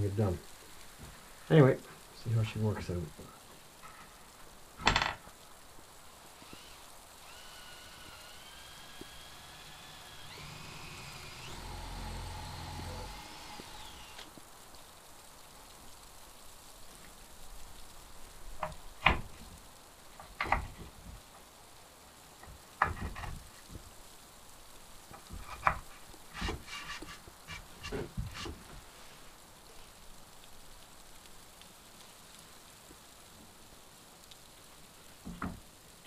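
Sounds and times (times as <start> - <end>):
faint steady hiss: 0.0 - 36.0
wood knocking on wood: 35.2 - 35.6.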